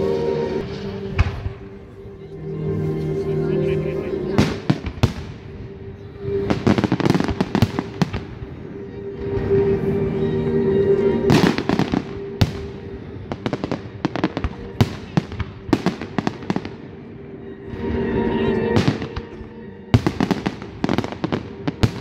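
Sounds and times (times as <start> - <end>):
fireworks bursting with bangs: 0.6 - 1.9, 4.3 - 5.6, 6.2 - 8.6, 11.2 - 17.1, 18.7 - 22.0
fireworks crackling: 3.5 - 10.0, 11.0 - 17.1, 18.7 - 22.0.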